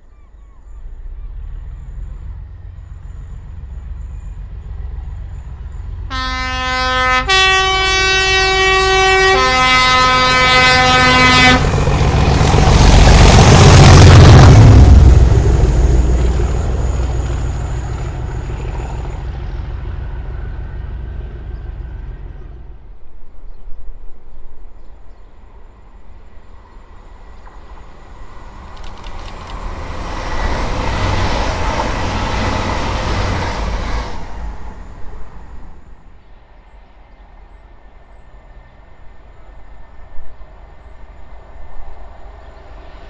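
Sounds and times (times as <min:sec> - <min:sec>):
train passing: 0:00.0 - 0:43.0
locomotive two-tone horn: 0:06.0 - 0:11.8.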